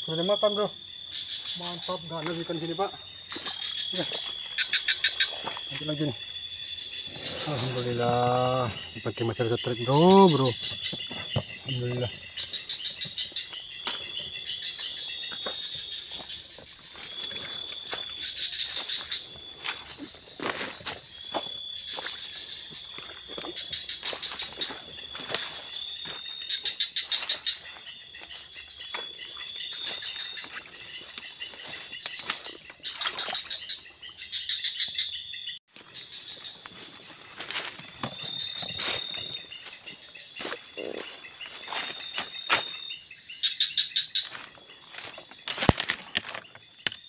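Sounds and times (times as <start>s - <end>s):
crickets droning: 0.0s - 47.0s
insect chirping calls: 0.0s - 47.0s
rustling through undergrowth: 10.6s - 33.7s, 35.7s - 43.0s, 44.0s - 46.9s.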